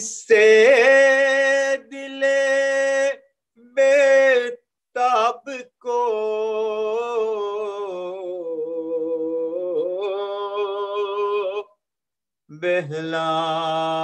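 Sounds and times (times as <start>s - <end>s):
man chanting: 0.0s - 11.8s, 12.5s - 14.0s.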